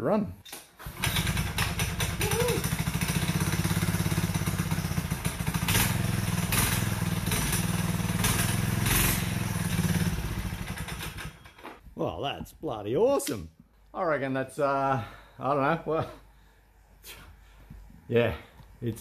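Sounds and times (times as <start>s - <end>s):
small engine chugging: 0.8s - 11.6s.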